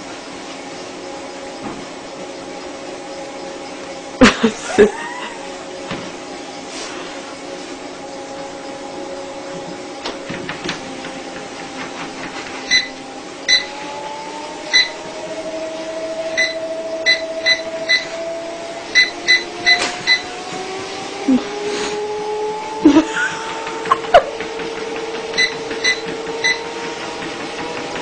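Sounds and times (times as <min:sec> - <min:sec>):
electric motor humming: 0:07.8 - 0:28.0.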